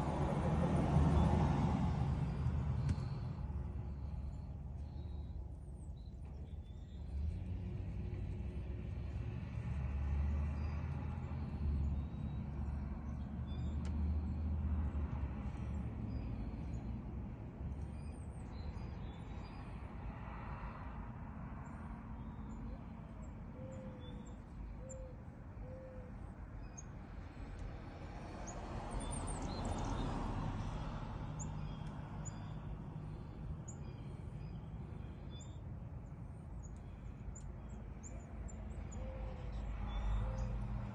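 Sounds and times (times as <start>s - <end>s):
distant traffic rumble: 0.0s - 40.9s
small birds chirping: 2.3s - 20.2s, 21.6s - 27.8s, 28.4s - 40.9s.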